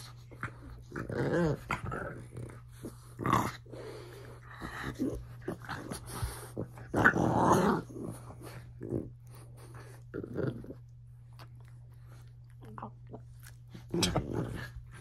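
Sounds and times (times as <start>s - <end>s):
dogs growling: 0.0s - 11.0s, 12.1s - 15.0s.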